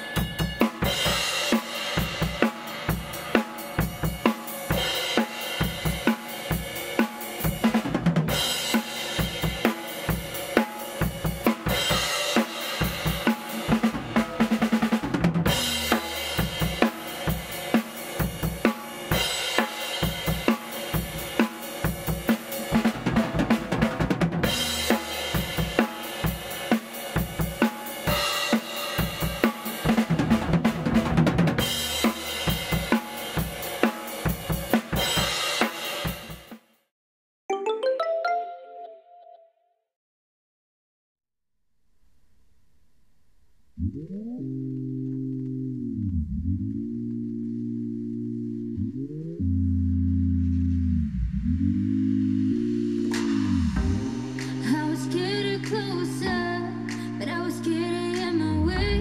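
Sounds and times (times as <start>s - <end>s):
drum kit playing: 0.0s - 36.6s, 52.8s - 56.1s.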